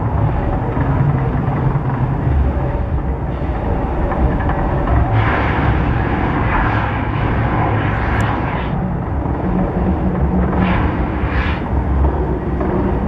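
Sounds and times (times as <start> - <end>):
loud steady rumble: 0.0 - 13.0.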